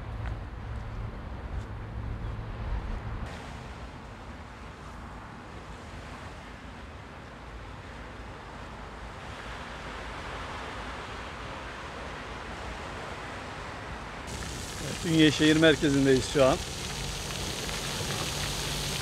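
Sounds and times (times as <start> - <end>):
waves washing on beach: 8.7 - 19.0.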